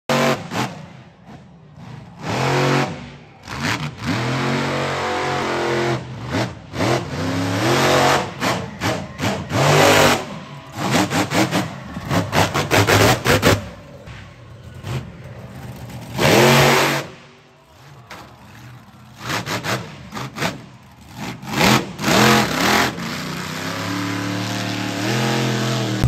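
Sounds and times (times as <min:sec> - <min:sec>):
truck engine revving: 0:00.1 - 0:26.0.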